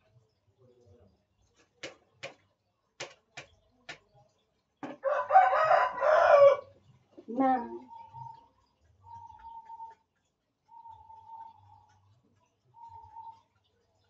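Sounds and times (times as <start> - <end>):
rooster crowing: 5.0 - 6.7.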